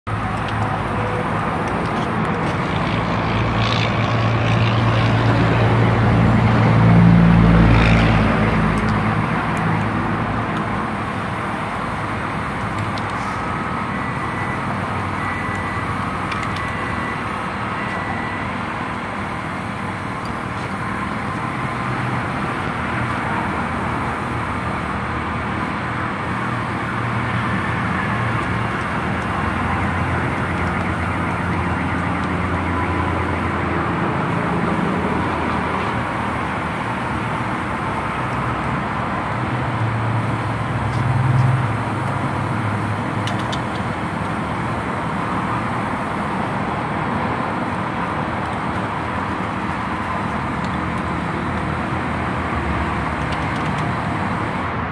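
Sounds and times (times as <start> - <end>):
outdoor traffic noise: 0.0 - 54.9
vehicle passing with low rumble: 0.1 - 16.2.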